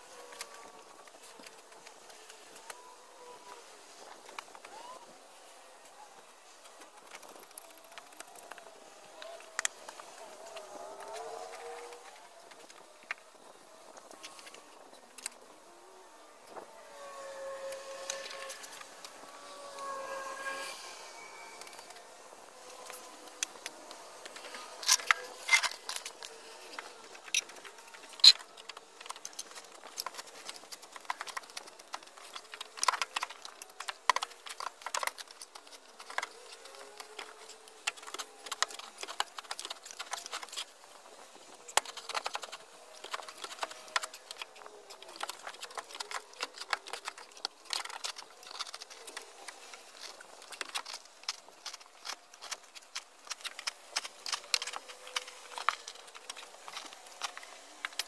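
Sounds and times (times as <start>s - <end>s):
digging soil and stones: 16.9s - 58.0s.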